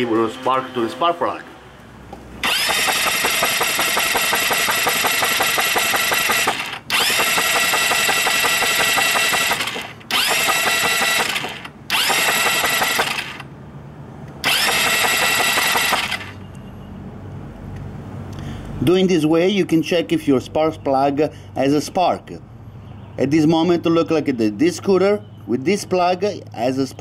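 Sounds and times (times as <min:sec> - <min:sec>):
starter motor cranking engine: 0:02.4 - 0:13.5, 0:14.4 - 0:16.4.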